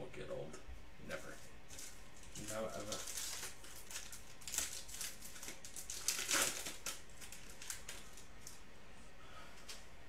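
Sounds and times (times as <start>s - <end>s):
foil wrapper crinkling and tearing: 1.3s - 8.6s.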